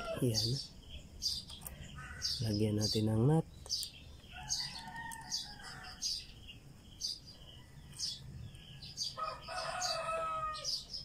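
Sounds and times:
rooster crowing: 0.0 - 0.4, 4.3 - 6.1, 8.8 - 10.8
small birds chirping: 0.0 - 11.0.

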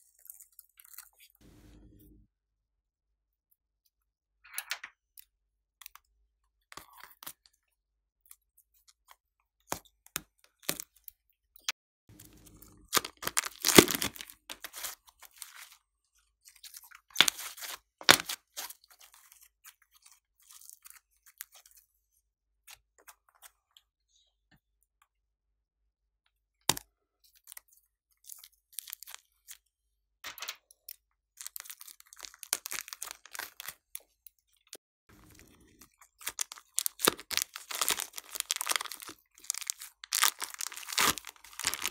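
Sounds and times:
plastic bags crinkling: 12.2 - 15.7, 31.4 - 33.9, 35.1 - 41.9
clay squeezing out: 12.2 - 15.8, 35.1 - 41.9.

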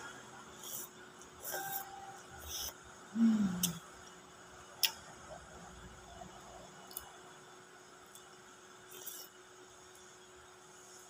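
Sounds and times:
quiet eating sounds: 0.0 - 10.2.

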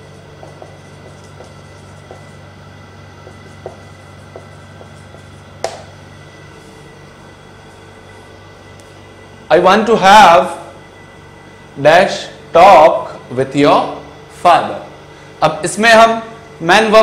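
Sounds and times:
marker scratching on whiteboard: 0.0 - 2.5, 3.2 - 5.9
steady background hum: 0.0 - 17.0.

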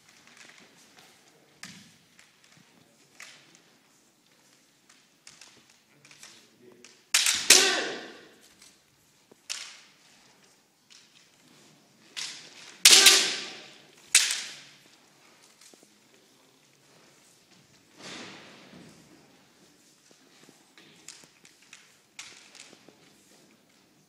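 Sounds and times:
bamboo swords cracking: 6.8 - 8.7, 12.2 - 14.9
loud drawn-out shouts: 7.3 - 8.3.

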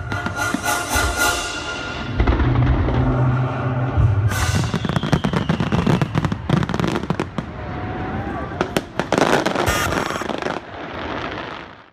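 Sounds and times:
fireworks crackling: 0.0 - 11.9.

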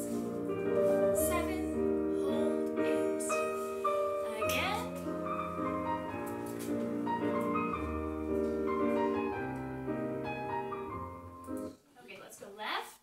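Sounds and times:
piano music: 0.0 - 11.8.

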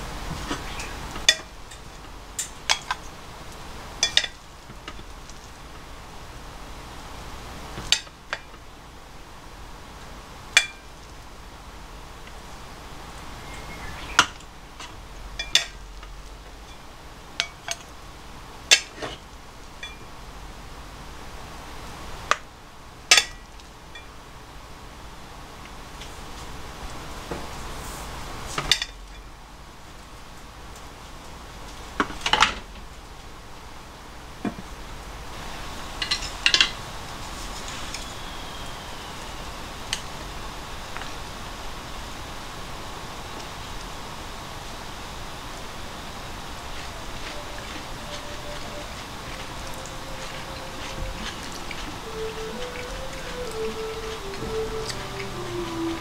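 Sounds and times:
dishes clinking: 4.0 - 4.4, 10.6 - 10.9, 14.2 - 15.8, 19.8 - 20.1, 46.8 - 56.0
chopsticks clicking: 47.2 - 56.0.

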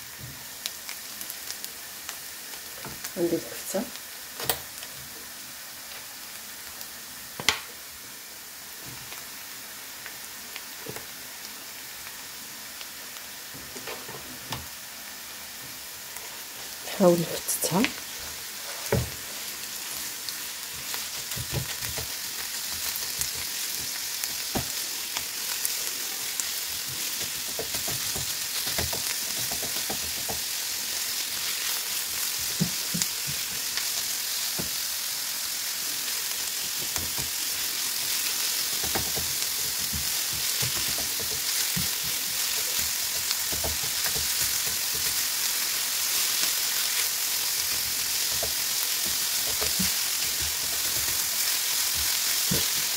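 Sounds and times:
meat sizzling in a frying pan: 0.0 - 52.9.

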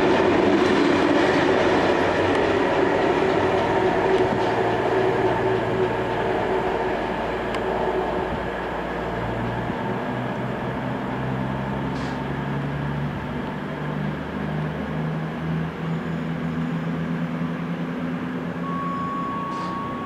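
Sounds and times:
diesel locomotive engine running: 0.0 - 20.0
steady high tone: 18.6 - 20.0.

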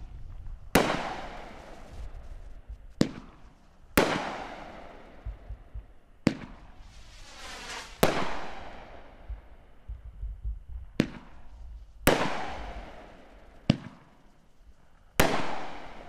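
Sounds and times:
firework bangs with echoes: 0.0 - 10.1, 10.9 - 14.3, 15.2 - 16.0
firework hissing rise: 6.8 - 8.0.

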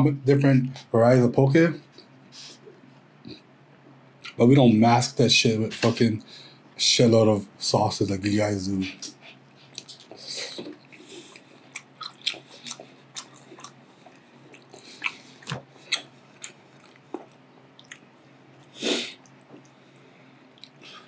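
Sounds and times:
person chewing food: 9.3 - 21.0
wet mouth clicks and lip smacks: 9.7 - 18.0.

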